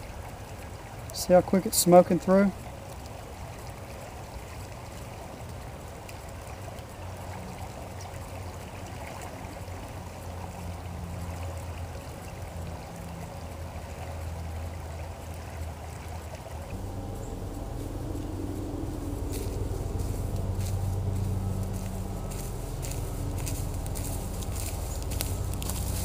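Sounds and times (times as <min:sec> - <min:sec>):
river water rushing: 0:00.0 - 0:26.0
low rumble: 0:16.7 - 0:26.0.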